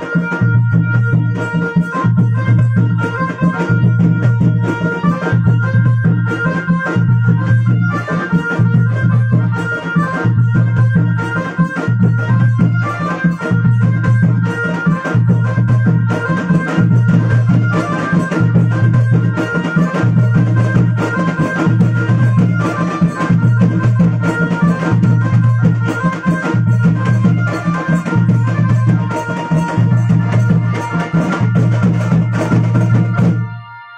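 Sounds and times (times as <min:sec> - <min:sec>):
drums beating: 0:00.0 - 0:33.6
keyboard melody: 0:00.0 - 0:33.9.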